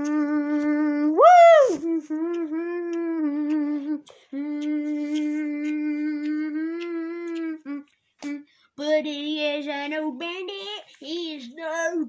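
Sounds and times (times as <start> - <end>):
person humming long notes: 0.0 - 8.5.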